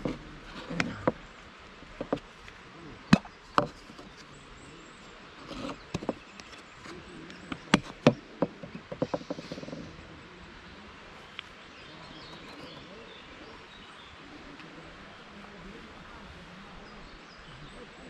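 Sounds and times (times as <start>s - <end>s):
box knocking on wooden table: 7.6s - 9.4s.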